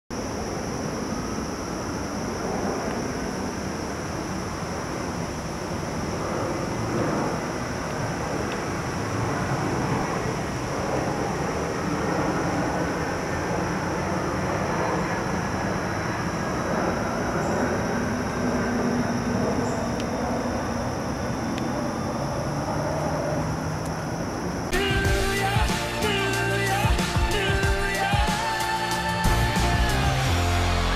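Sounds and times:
distant traffic rumble: 0.1 - 26.8
insects droning: 0.1 - 30.9.

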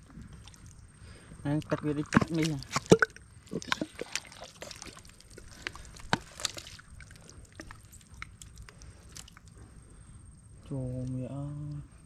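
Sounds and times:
wet mud squelching: 0.0 - 9.7
mud clicks and pops: 1.5 - 9.6.

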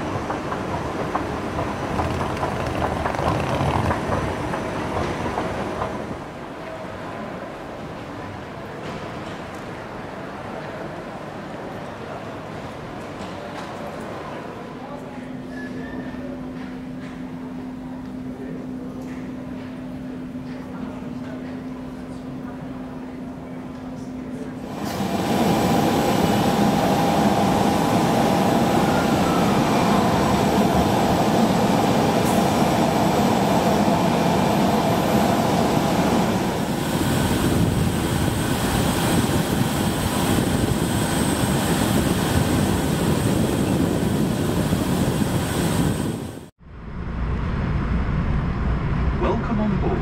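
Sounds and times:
jet aircraft whine and rush: 24.6 - 50.0.

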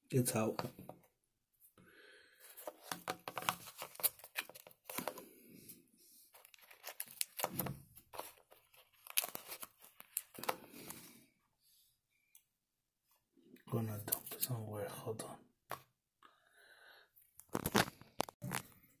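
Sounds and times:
coffee pod paper crinkling: 2.5 - 5.2, 6.3 - 10.9, 17.4 - 18.6.

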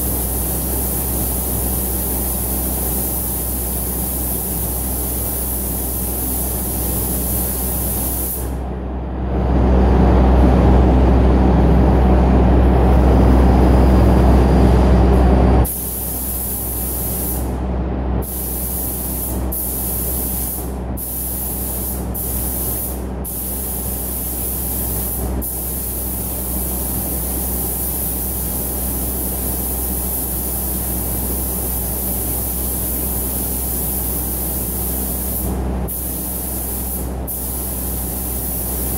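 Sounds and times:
paint spray gun hissing: 0.0 - 8.6, 15.7 - 17.5, 18.2 - 38.9
spray booth hum: 0.0 - 8.7, 12.1 - 17.6, 18.2 - 38.9
loud low rumble: 8.5 - 15.7.

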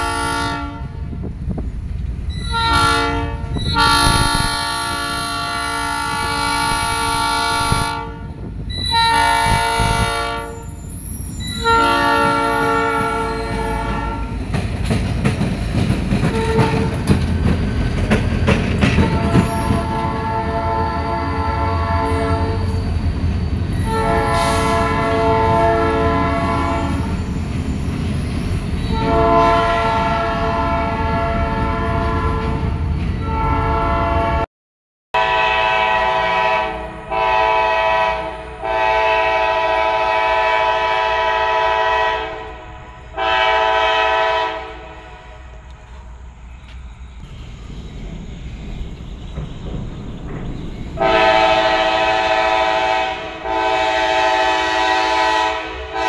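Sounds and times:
locomotive horn chord blasts: 0.0 - 1.0, 2.4 - 10.6, 11.6 - 14.4, 16.3 - 17.1, 19.0 - 22.7, 23.8 - 27.1, 28.9 - 34.5, 35.2 - 45.6, 51.0 - 56.0
locomotive rumble: 0.0 - 34.4, 35.2 - 56.0
rail clatter: 8.4 - 20.8, 46.7 - 53.5.

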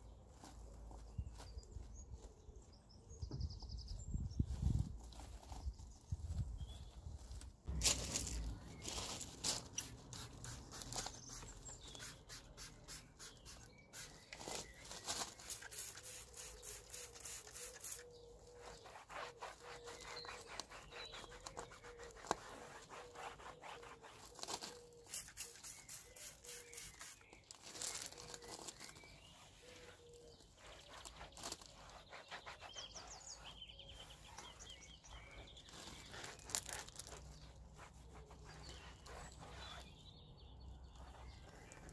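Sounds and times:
cloth rubbing a wheel: 14.2 - 25.9, 29.4 - 40.0.

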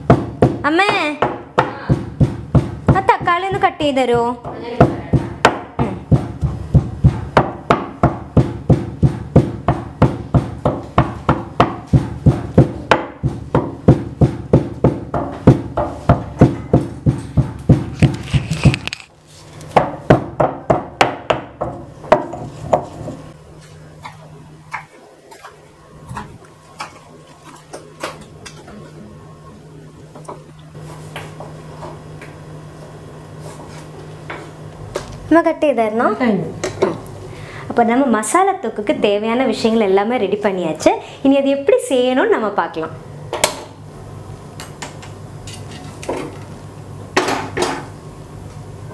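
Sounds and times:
pestle pounding in stone mortar: 0.0 - 19.0, 19.7 - 23.2.

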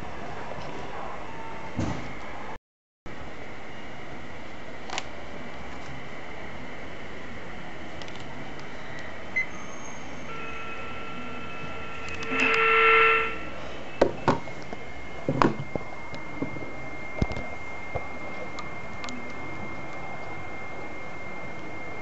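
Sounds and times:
steady tones: 9.2 - 22.0
short electronic beep: 9.4 - 14.0
radio static hiss: 10.3 - 13.8.

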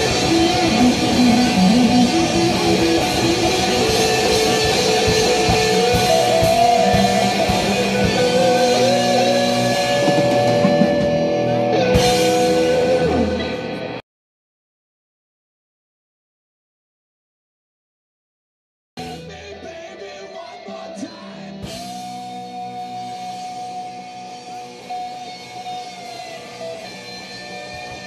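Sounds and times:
drum kit: 0.0 - 14.0, 19.0 - 19.6, 21.6 - 28.0
electric guitars: 0.0 - 14.0, 19.0 - 28.0.

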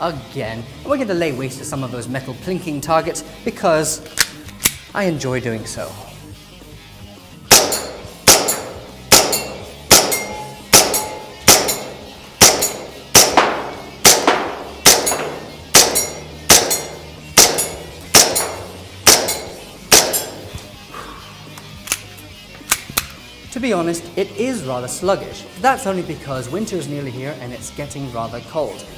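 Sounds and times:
airsoft pistol shots: 7.5 - 20.4
pellets clanging on metal targets: 7.6 - 20.6.

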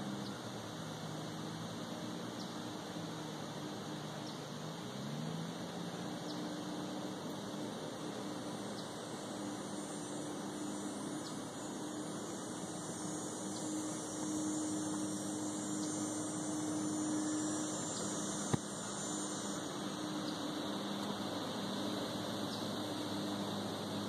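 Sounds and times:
low steady hum: 0.0 - 24.0
woodland hiss: 0.0 - 24.0
faint high ticks: 17.7 - 18.7, 21.0 - 21.2.

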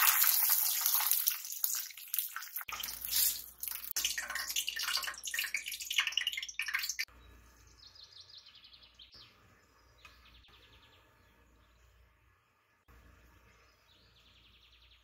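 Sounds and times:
tap water running into sink: 0.0 - 7.0
faint bird chirping: 6.2 - 15.0.

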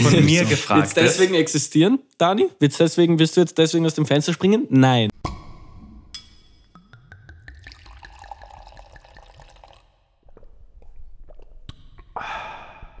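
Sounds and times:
liquid pouring and fizzing: 6.9 - 11.7.

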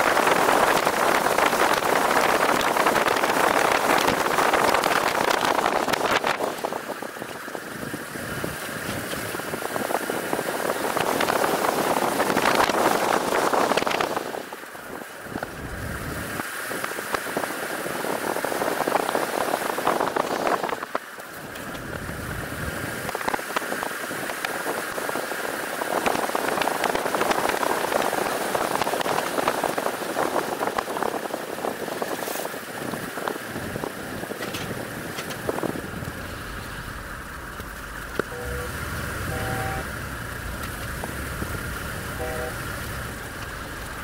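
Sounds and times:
rolling road noise: 0.0 - 44.0
wind buffeting microphone: 17.8 - 44.0
faint high whine: 37.8 - 41.4, 42.0 - 43.4.

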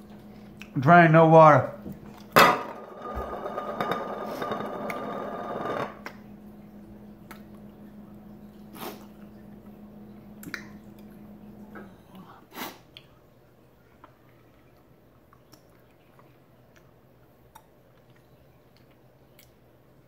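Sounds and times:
low steady hum: 0.0 - 20.0
mouth chewing clicks and smacks: 10.4 - 11.2, 14.0 - 19.8.

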